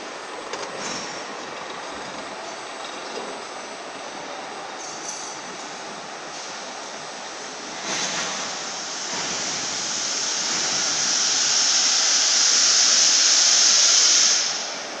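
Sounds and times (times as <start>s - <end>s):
pipe turning on rollers hissing: 4.8s - 15.0s.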